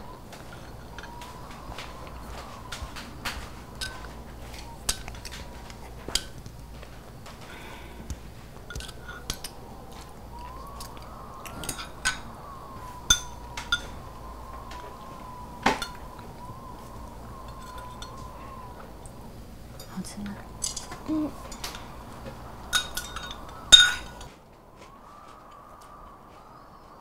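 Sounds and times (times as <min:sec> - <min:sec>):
cutlery clinking on ceramic bowls: 0:22.7 - 0:24.3.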